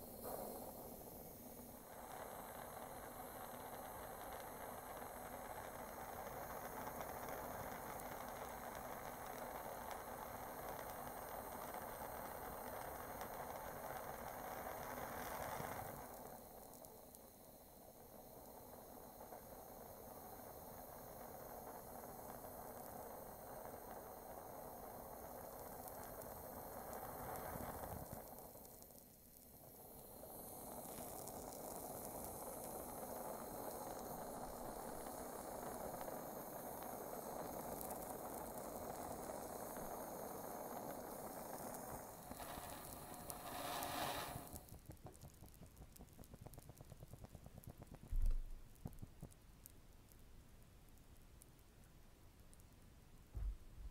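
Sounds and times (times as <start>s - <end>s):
torch flame hissing: 0.0s - 48.3s
burning plastic crackling: 22.5s - 52.8s
short knock: 53.4s - 53.7s.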